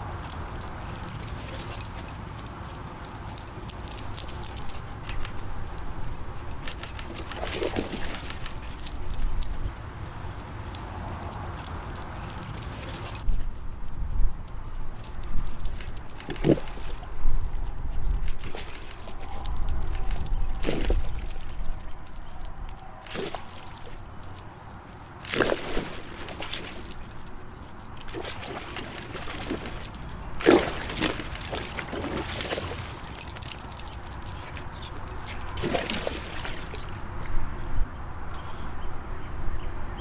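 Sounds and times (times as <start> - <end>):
collar tags jingling: 0.0 - 37.0
water splashing in a pool: 6.7 - 8.8, 25.2 - 27.4, 28.0 - 33.4, 35.0 - 37.1.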